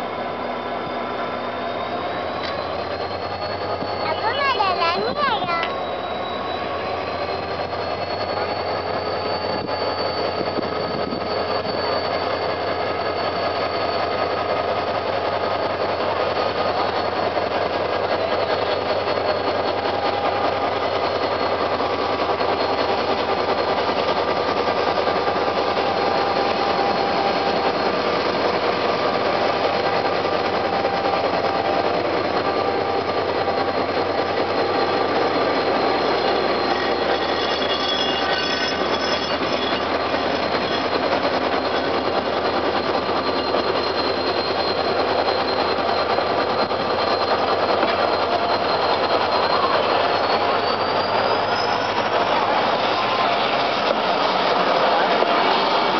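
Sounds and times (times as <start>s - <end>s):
diesel locomotive engines under load: 0.0s - 55.9s
train coaches rolling on rails: 0.0s - 55.9s.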